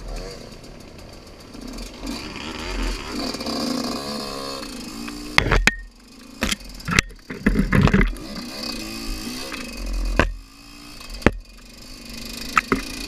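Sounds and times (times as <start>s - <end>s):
dirt bike engine low revs: 1.4s - 13.0s
loud knocks and clatters: 6.8s - 8.2s.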